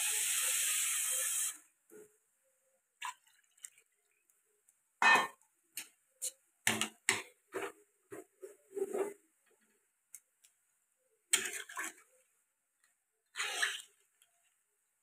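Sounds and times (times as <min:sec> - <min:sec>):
water poured into curry: 0:13.3 - 0:14.3.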